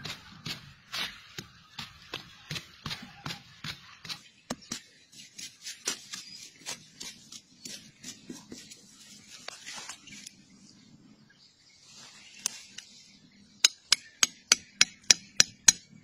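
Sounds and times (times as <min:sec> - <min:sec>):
hand tool scraping dry soil: 0:00.0 - 0:10.3.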